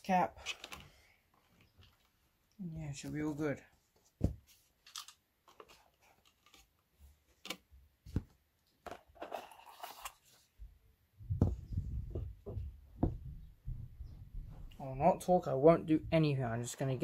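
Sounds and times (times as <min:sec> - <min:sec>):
low bumps and rumbling: 0:11.2 - 0:14.8.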